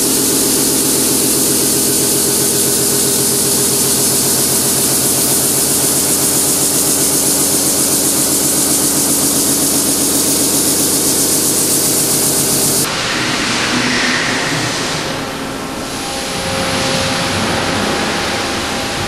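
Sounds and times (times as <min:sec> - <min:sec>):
dull machine sound: 0:00.0 - 0:12.9
loud hiss: 0:00.0 - 0:12.9
pulsing machine hum: 0:00.0 - 0:12.9.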